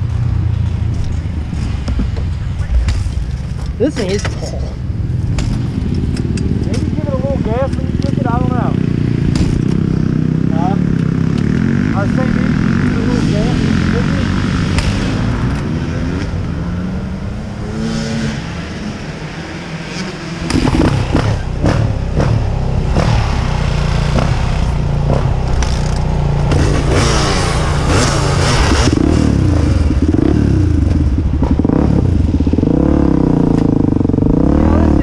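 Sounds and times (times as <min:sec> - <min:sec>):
knocks and clatter from bike: 0:00.0 - 0:03.8, 0:05.2 - 0:07.0, 0:09.2 - 0:09.9, 0:20.4 - 0:23.5, 0:24.1 - 0:27.2
dirt bike engine: 0:00.0 - 0:35.0.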